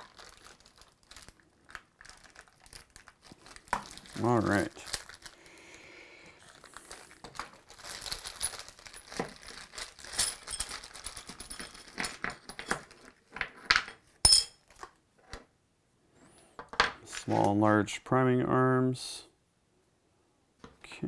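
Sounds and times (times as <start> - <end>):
plastic bag crinkling: 0.0 - 12.2
metal parts clinking: 7.9 - 12.9.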